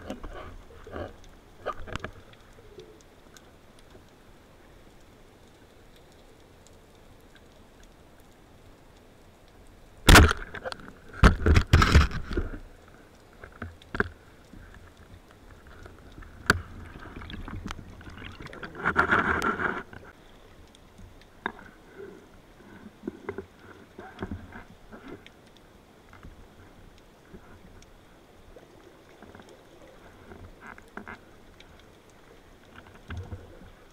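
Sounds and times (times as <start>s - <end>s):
small clicks: 0.0s - 21.8s
rushing sloshing water underwater: 0.0s - 33.9s.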